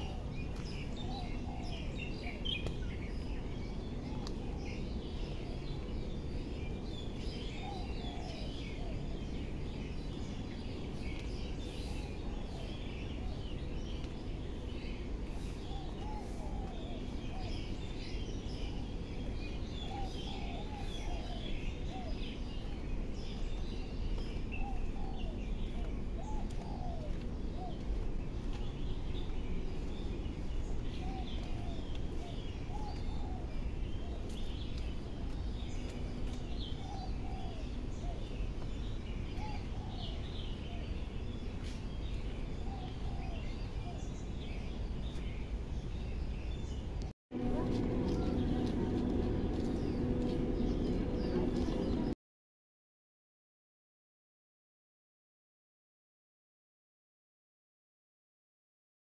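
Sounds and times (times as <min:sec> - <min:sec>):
birds chirping and calling: 0:00.0 - 0:52.2
low background rumble: 0:47.4 - 0:52.2.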